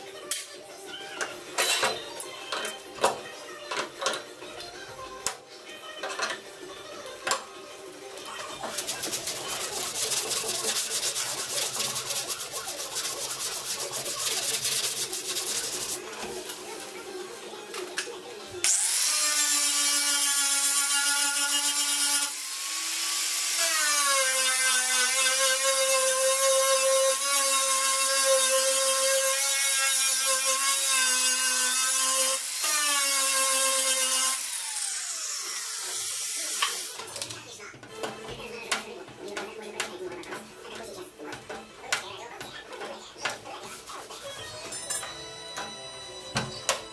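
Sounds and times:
sandpaper rubbing on metal: 0:08.6 - 0:16.2, 0:43.6 - 0:44.4
angle grinder grinding steel: 0:18.6 - 0:37.1.

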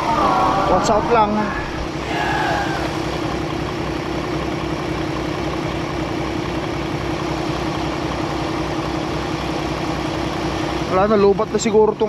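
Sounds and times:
diesel truck engine idling: 0:01.7 - 0:10.9.

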